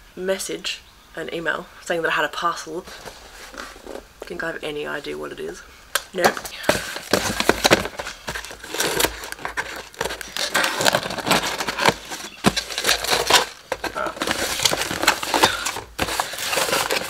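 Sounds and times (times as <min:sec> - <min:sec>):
cardboard scraping: 0:02.8 - 0:04.4, 0:06.2 - 0:17.0
tape crackling: 0:05.9 - 0:17.0
box flaps pulled open: 0:06.6 - 0:17.0.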